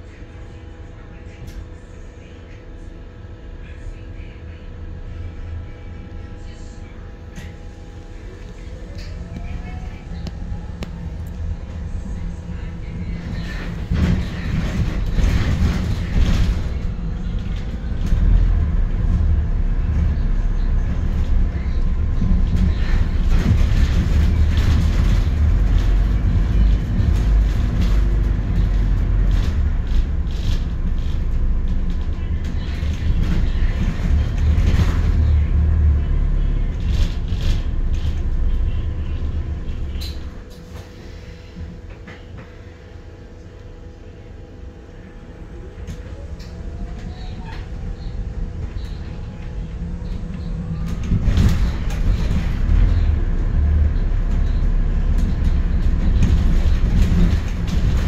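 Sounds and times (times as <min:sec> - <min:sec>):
bus engine and road rumble: 0:00.0 - 0:58.0
bus rising whine: 0:04.8 - 0:58.0.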